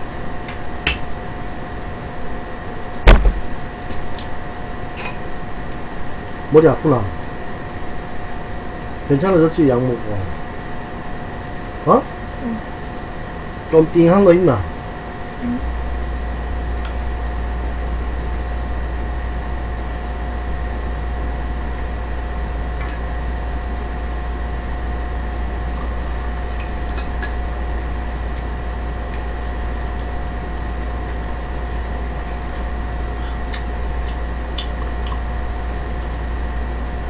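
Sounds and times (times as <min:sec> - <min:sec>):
low hum and hiss: 0:00.0 - 0:37.0.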